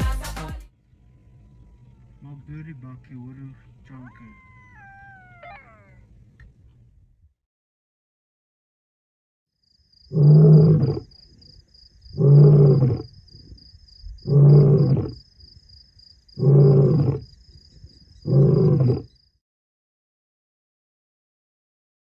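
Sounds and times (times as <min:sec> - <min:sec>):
high insect chirping: 0:09.6 - 0:19.4
lion grunting: 0:10.1 - 0:11.1, 0:12.1 - 0:13.5, 0:14.2 - 0:15.2, 0:16.4 - 0:17.3, 0:18.2 - 0:19.1
lion roaring: 0:10.1 - 0:11.1, 0:12.1 - 0:13.5, 0:14.1 - 0:15.2, 0:16.4 - 0:17.3, 0:18.2 - 0:19.2.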